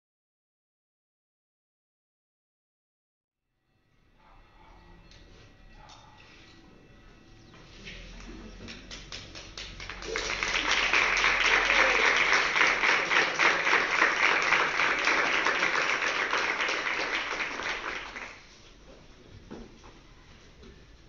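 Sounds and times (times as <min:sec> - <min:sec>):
applause: 0:08.2 - 0:18.6.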